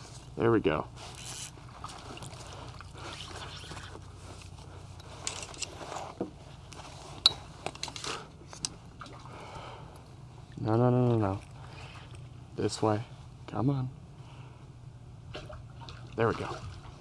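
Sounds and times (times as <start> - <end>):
water sloshing against kayak: 1.0 - 4.9.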